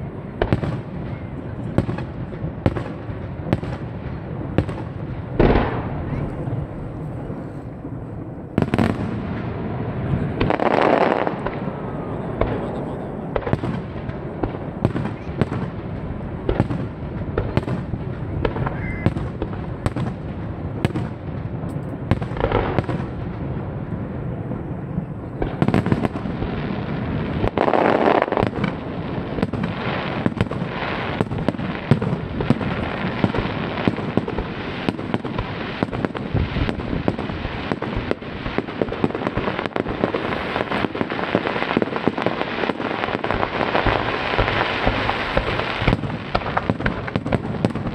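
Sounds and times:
firework crackling: 0.0 - 47.9.

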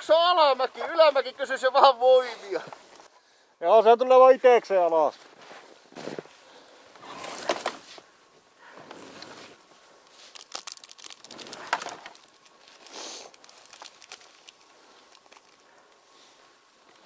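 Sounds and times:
snow crunching: 0.0 - 3.1, 4.1 - 10.6
clothing rustling: 5.0 - 16.6.

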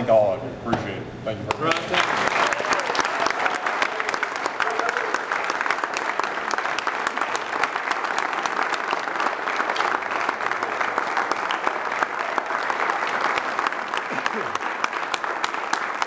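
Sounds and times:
dense applause: 1.5 - 16.0.

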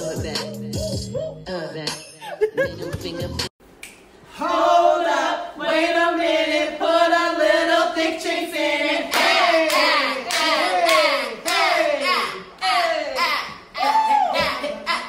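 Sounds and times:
rhythmic hand claps: 9.1 - 11.8.

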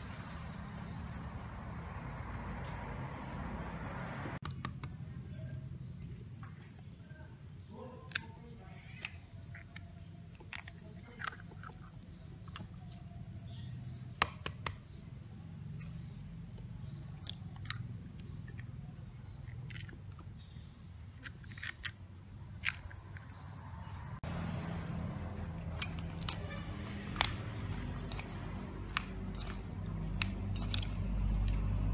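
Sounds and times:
eggs cracking: 8.1 - 13.1, 15.7 - 23.8, 25.4 - 31.9
beans clicking in steel bowl: 25.6 - 31.9.

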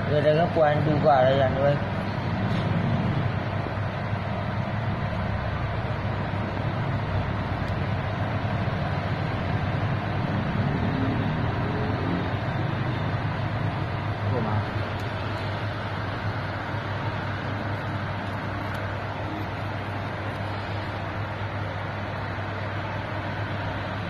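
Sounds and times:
low hum with hiss: 0.0 - 24.0.

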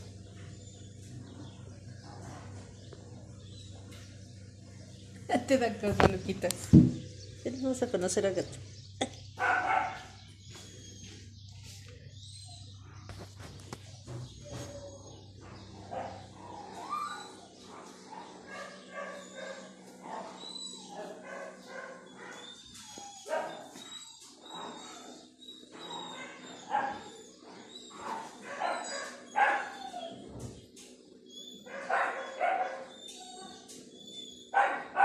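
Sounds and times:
small dog barking and yipping: 9.4 - 10.1, 15.9 - 24.8, 28.0 - 30.2, 31.7 - 33.5, 34.5 - 35.0.

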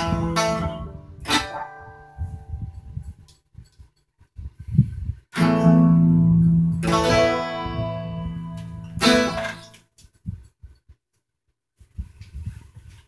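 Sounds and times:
electric guitar strumming chords: 0.0 - 2.7, 5.4 - 9.8.

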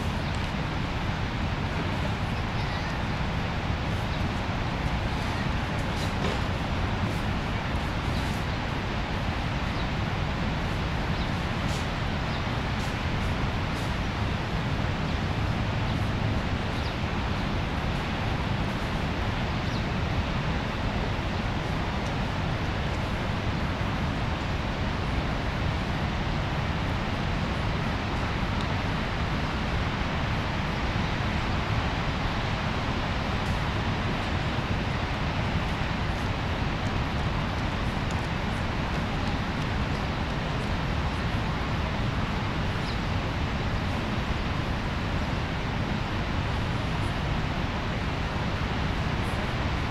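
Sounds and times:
waterfall rushing: 0.0 - 49.9.

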